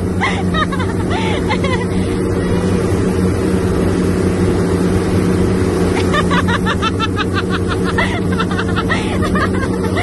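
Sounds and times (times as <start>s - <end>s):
motorboat engine drone: 0.0s - 10.0s
water rushing in wake: 0.0s - 10.0s
person laughing: 0.2s - 2.0s, 6.0s - 10.0s.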